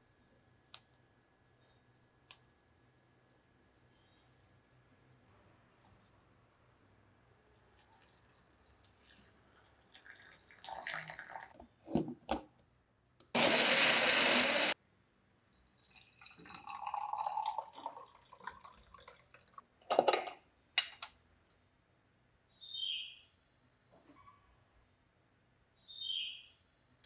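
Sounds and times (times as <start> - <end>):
juice poured through metal strainer: 7.6 - 11.6, 15.5 - 19.6
water poured into blender cup: 7.7 - 11.6, 15.5 - 19.6
blender running: 13.4 - 14.8.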